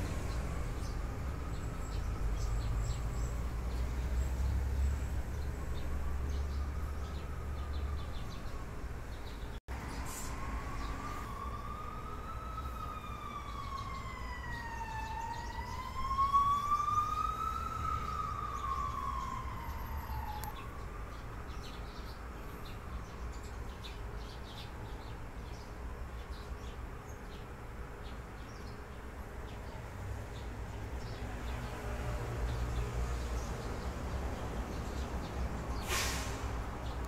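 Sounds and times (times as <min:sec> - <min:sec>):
sparrows chirping: 0:00.0 - 0:10.2, 0:13.2 - 0:19.7, 0:20.3 - 0:36.0
low street hum: 0:00.0 - 0:37.0
siren wailing: 0:05.5 - 0:08.8, 0:10.4 - 0:21.1.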